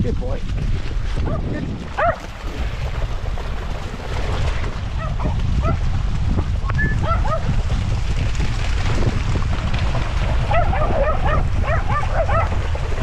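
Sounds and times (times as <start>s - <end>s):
wind rumble on microphone: 0.0s - 13.0s
dog barking: 1.2s - 1.4s, 2.0s - 2.2s, 5.0s - 5.8s, 7.0s - 7.5s, 10.5s - 12.6s.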